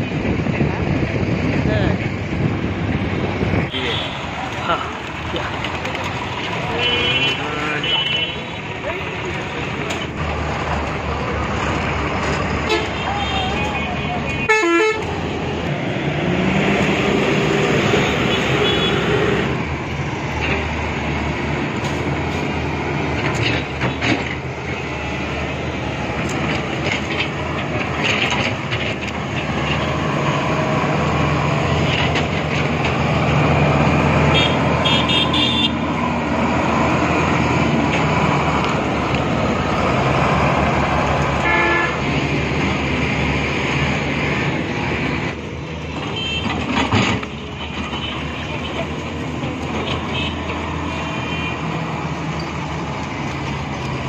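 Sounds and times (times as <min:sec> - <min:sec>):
diesel machinery engines droning: 0:00.0 - 0:54.0
knocks and clanks: 0:23.1 - 0:24.5, 0:26.2 - 0:29.9, 0:45.9 - 0:48.3.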